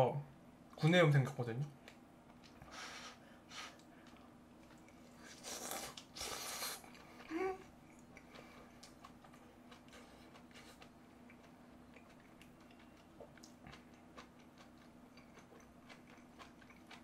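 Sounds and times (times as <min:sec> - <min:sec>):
hissing breaths: 0:02.6 - 0:04.2
person slurping broth: 0:02.7 - 0:03.8, 0:05.2 - 0:06.9.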